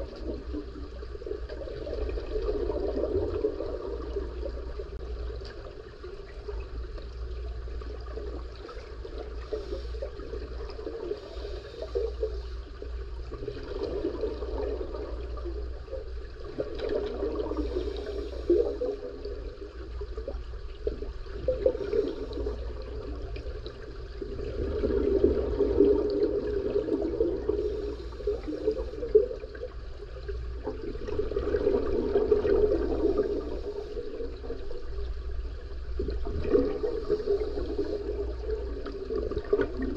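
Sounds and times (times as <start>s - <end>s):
bubbles rushing out: 0.0s - 4.9s, 13.3s - 15.7s, 16.4s - 17.8s, 21.2s - 29.7s, 30.6s - 35.1s, 36.0s - 39.9s
low steady hum: 0.0s - 39.9s
diver breathing through regulator: 9.4s - 10.3s, 11.1s - 12.8s, 17.5s - 19.0s.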